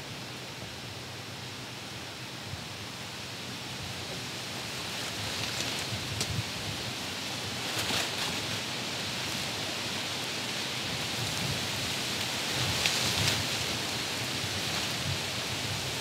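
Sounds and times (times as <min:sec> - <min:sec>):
rain falling on leaves: 0:00.2 - 0:16.0.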